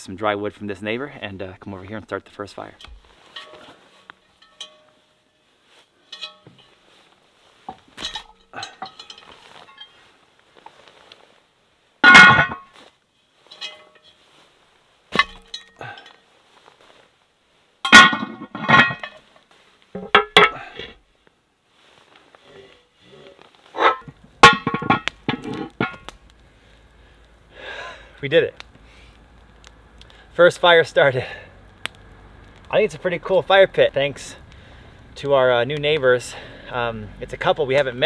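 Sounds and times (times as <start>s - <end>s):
cast iron cookware clanking on rocks: 2.6s - 5.2s, 6.0s - 6.8s, 7.6s - 10.1s, 12.0s - 12.8s, 13.4s - 14.2s, 15.1s - 16.2s, 17.8s - 19.3s, 19.9s - 20.8s, 23.1s - 26.2s.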